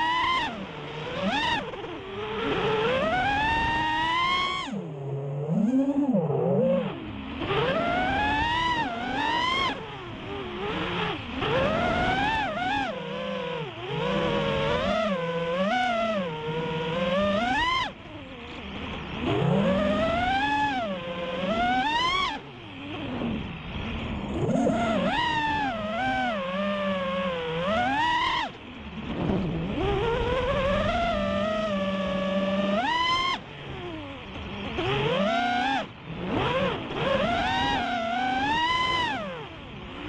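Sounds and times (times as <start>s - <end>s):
quadcopter motors whining: 0.0s - 40.0s.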